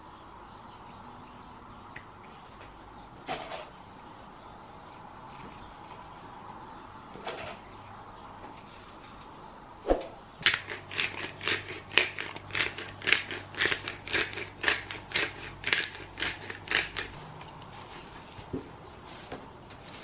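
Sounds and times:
pepper mill grinding: 4.6s - 6.6s, 8.4s - 9.4s, 10.4s - 18.5s.

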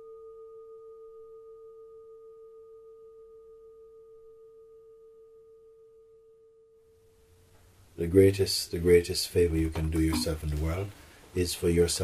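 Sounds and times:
ringing tone: 10.1s - 10.6s.

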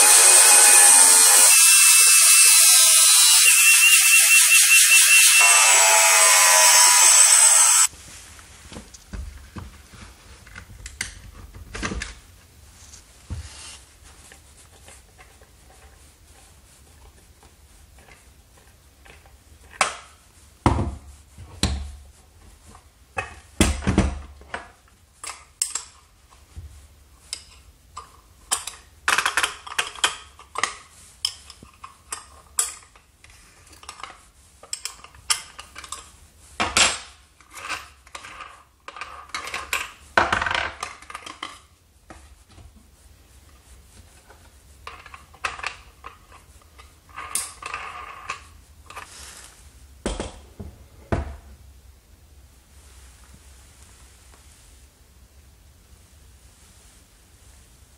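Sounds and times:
metal scraping: 0.0s - 7.9s.

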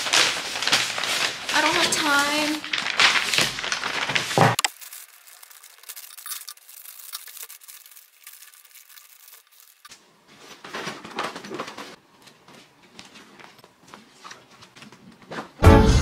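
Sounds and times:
fabric bag rustling: 0.0s - 9.8s
wrapping paper crinkling and tearing: 0.0s - 12.0s.

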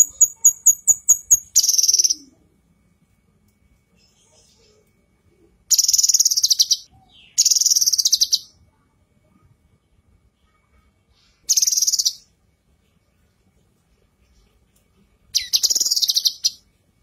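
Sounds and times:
bird chattering trill: 0.0s - 2.4s, 5.7s - 8.5s, 11.4s - 12.3s, 15.3s - 16.6s.

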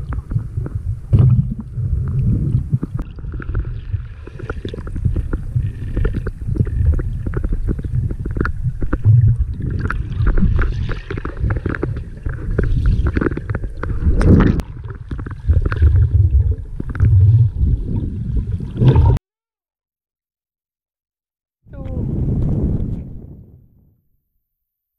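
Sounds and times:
underwater rumble and gurgle: 0.0s - 19.2s
small clicks and crackles: 2.1s - 15.9s.

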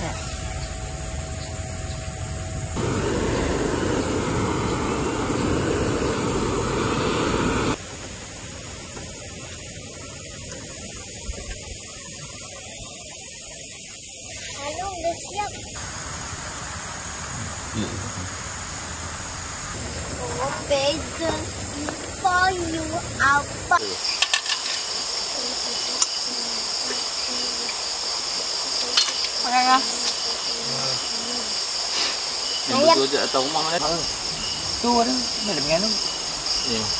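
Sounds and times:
night insects trilling: 0.0s - 36.9s
torch flame jet roaring: 2.7s - 8.0s, 15.2s - 36.9s.

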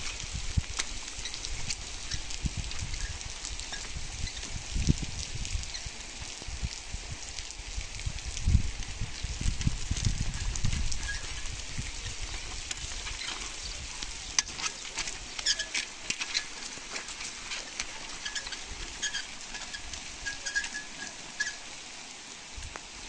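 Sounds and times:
stone roller crackling on roof: 0.0s - 23.0s
short high squeak: 18.2s - 21.6s.

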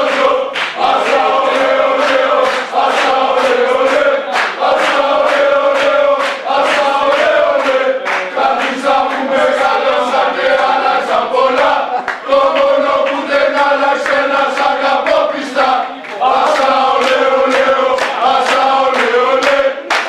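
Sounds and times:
football supporters chanting: 0.0s - 20.0s.

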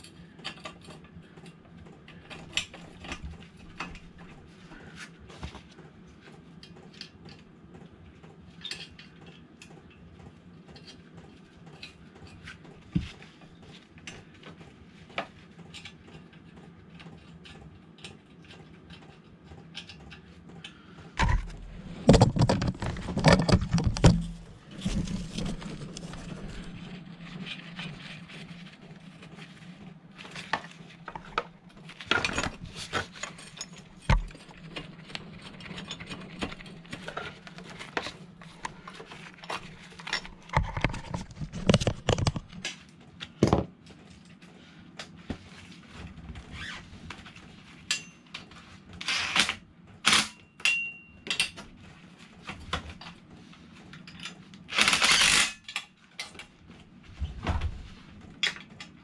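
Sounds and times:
steady low hum: 19.8s - 49.0s
hand tools and metal parts clinking: 50.1s - 51.6s.

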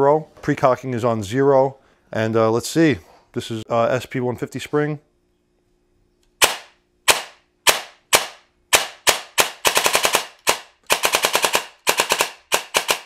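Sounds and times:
airsoft rifle shots: 6.4s - 13.0s.

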